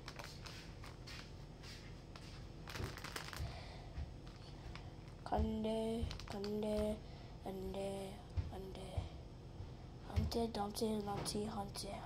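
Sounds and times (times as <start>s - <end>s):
grapes clicking and rustling on plate: 2.6s - 3.6s, 4.2s - 7.0s.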